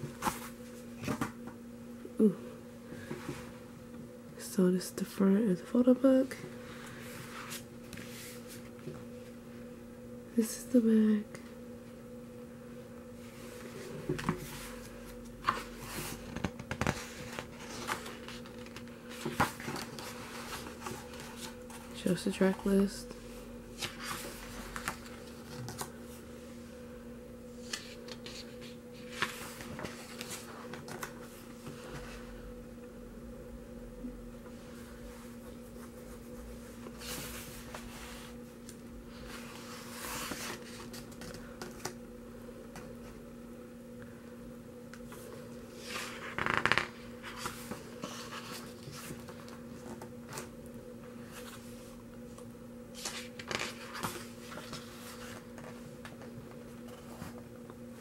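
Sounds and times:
faint steady hum: 0:00.0 - 0:58.0
paper pages rustling: 0:14.2 - 0:21.9, 0:23.8 - 0:25.9, 0:27.6 - 0:32.2, 0:39.2 - 0:42.0, 0:45.8 - 0:50.5, 0:52.9 - 0:57.4
page turning swishes: 0:27.6 - 0:31.2, 0:52.9 - 0:55.8.

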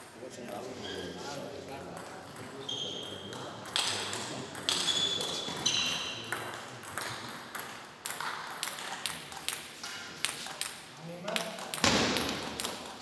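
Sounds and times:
short high squeaks: 0:00.8 - 0:01.3, 0:04.8 - 0:06.2
table tennis balls clicking: 0:03.3 - 0:05.0, 0:05.7 - 0:13.0.

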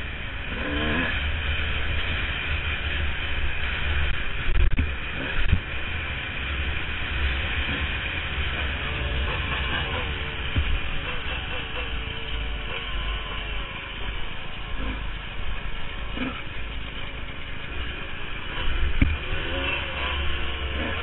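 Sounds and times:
dirt bike engine revving: 0:00.0 - 0:21.0
wind buffeting microphone: 0:08.6 - 0:11.3.

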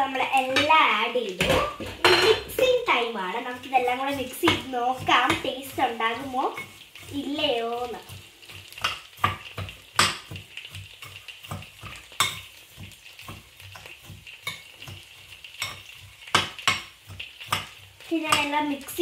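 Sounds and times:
metal spoon stirring in bowl: 0:03.4 - 0:18.6.

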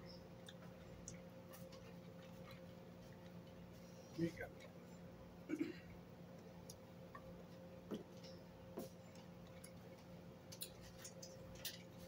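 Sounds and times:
faint steady hum: 0:00.0 - 0:12.0
chewing: 0:00.3 - 0:03.6.

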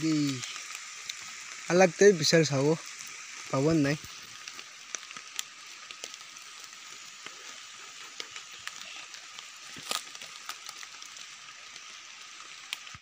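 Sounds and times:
small crackles: 0:00.0 - 0:13.0
steady high hiss: 0:00.0 - 0:13.0
footsteps on dry leaves: 0:07.6 - 0:11.3.

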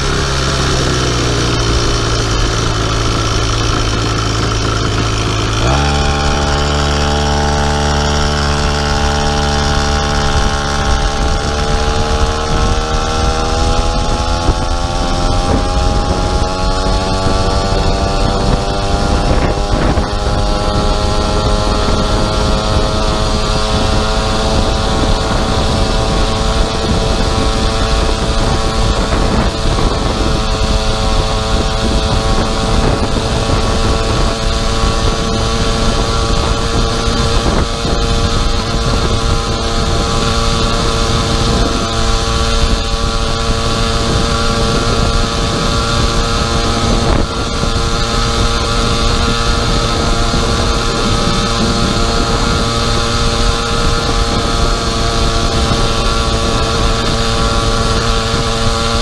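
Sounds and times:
two-stroke engine running: 0:00.0 - 0:59.0.

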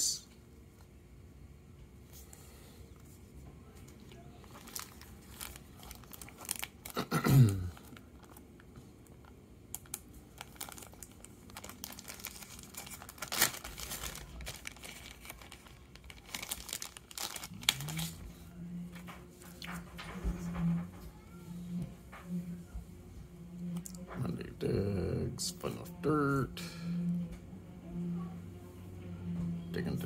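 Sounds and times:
plastic bag crinkling: 0:04.0 - 0:18.5.

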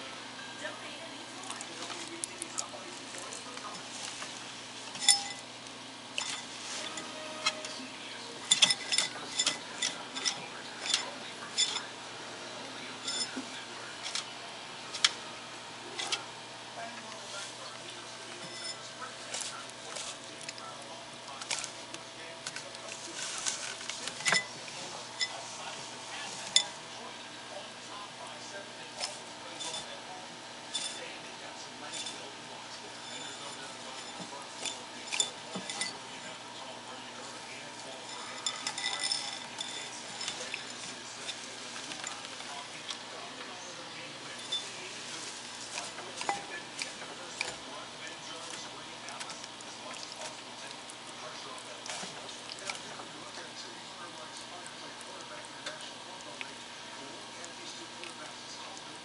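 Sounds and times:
ringing clinks: 0:05.0 - 0:05.4.

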